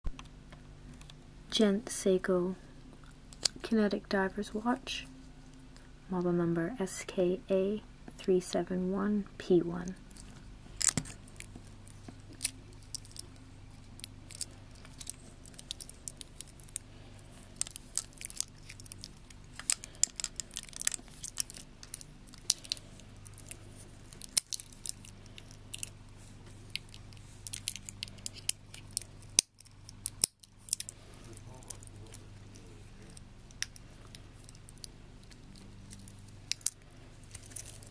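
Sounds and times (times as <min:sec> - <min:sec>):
steady low hum: 0:00.1 - 0:37.9.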